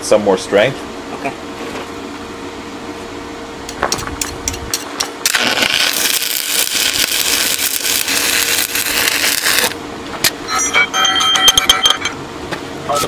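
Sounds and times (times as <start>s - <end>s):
welding arc crackling hiss: 4.2s - 9.8s.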